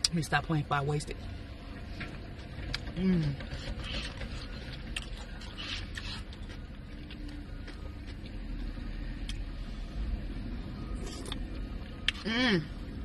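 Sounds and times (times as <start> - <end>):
low steady rumble: 0.0 - 13.0
person chewing: 3.5 - 8.3, 11.0 - 12.3.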